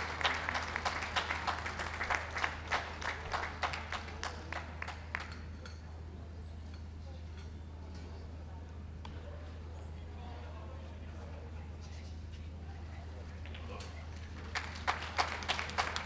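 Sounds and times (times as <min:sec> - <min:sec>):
audience applauding: 0:00.0 - 0:05.4, 0:14.3 - 0:16.0.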